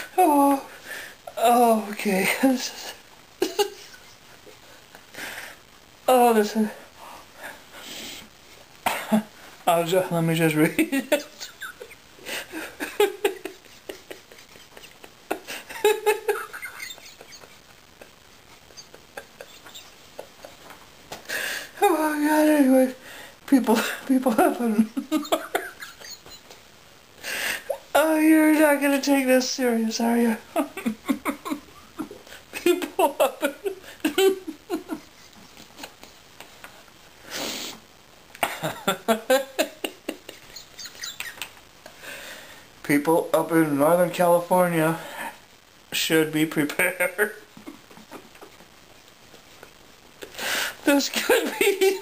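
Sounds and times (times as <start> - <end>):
man laughing breathlessly: 11.2 - 21.8, 27.2 - 27.9, 30.6 - 37.8.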